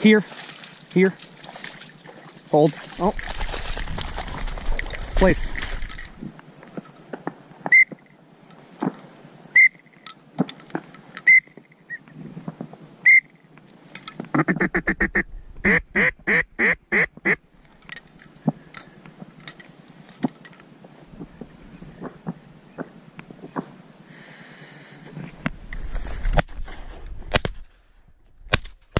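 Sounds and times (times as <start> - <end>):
duck quacking: 14.3 - 17.4.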